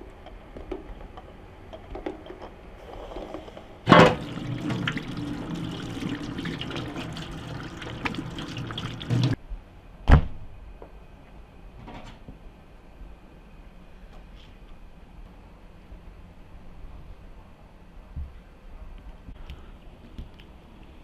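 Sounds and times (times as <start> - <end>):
tap water running into sink: 3.9 - 9.4.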